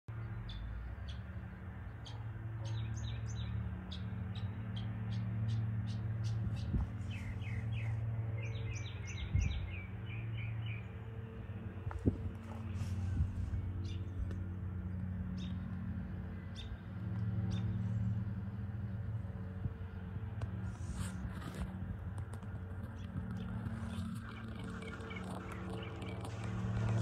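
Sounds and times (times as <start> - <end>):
steady low hum: 0.1 - 27.0
small birds chirping: 1.9 - 11.0, 22.8 - 27.0.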